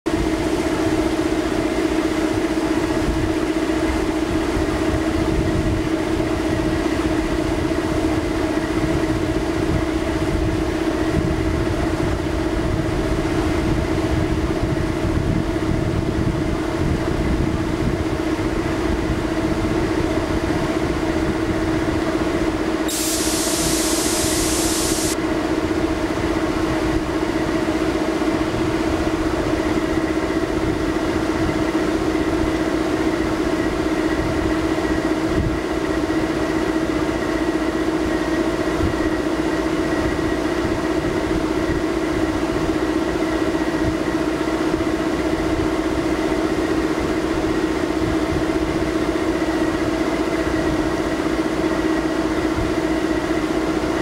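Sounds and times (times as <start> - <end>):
brief high hiss: 22.9 - 25.2.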